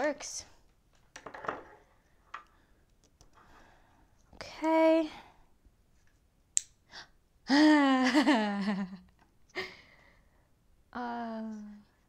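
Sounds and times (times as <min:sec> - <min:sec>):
woman breathing: 0:02.5 - 0:04.2, 0:09.5 - 0:10.6.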